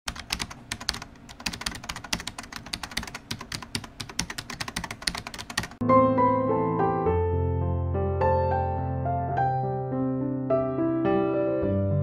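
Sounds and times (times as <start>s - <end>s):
fast typing on computer keyboard: 0.1s - 5.8s
piano music: 5.2s - 12.0s.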